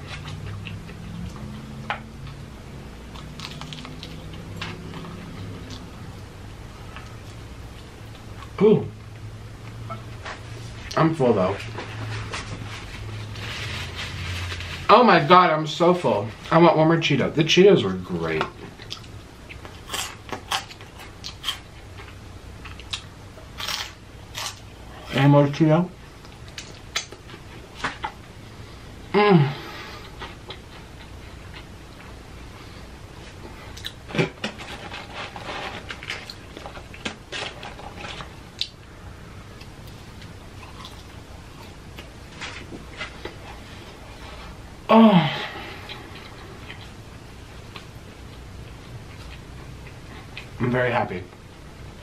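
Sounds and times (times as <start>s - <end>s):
low hum: 0.0s - 15.0s
chewing and gnawing chicken: 3.0s - 6.0s, 18.6s - 24.7s, 39.6s - 44.6s.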